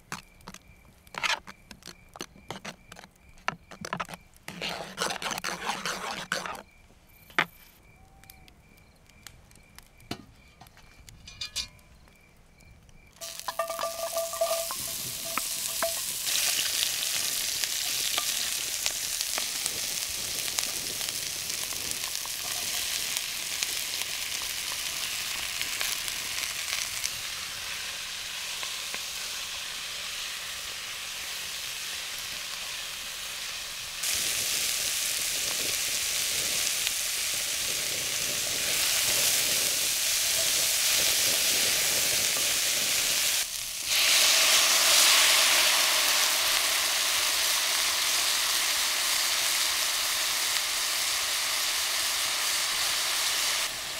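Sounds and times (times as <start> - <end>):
spoon stirring: 1.1 - 6.6, 13.2 - 16.6
food sizzling in a pan: 13.2 - 53.9.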